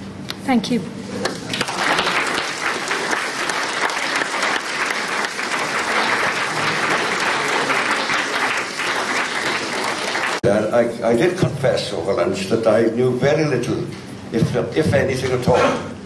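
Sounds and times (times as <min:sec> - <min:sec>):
audience applauding: 0:01.2 - 0:10.4.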